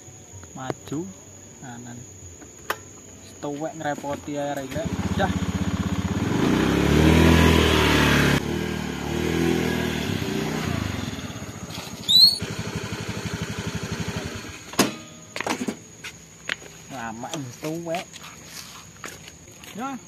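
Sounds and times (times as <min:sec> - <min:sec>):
scooter engine revving: 0:04.7 - 0:14.8
high rising chirp: 0:10.0 - 0:12.5.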